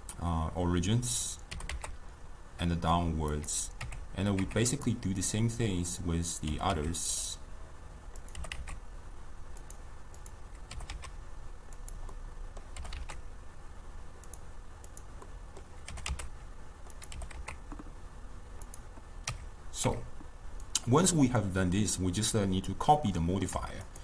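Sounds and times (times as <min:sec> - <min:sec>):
low steady hum: 0:00.0 - 0:24.0
keyboard keys clicking: 0:01.5 - 0:02.0, 0:08.1 - 0:08.8, 0:09.6 - 0:11.2, 0:11.8 - 0:13.2, 0:14.2 - 0:17.9.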